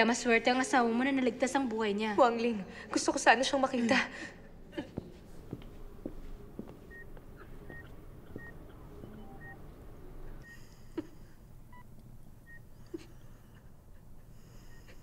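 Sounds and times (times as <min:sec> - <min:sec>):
patient monitor beeping: 0:04.8 - 0:15.0.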